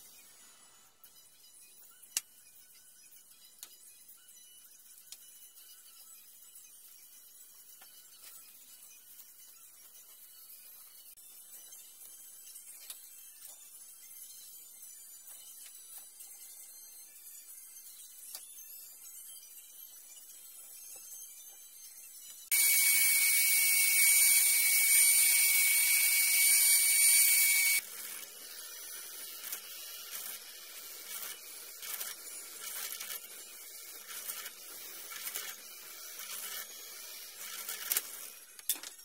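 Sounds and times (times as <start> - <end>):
drill bit cutting wood: 22.5 - 27.9
drill press whine: 22.5 - 38.4.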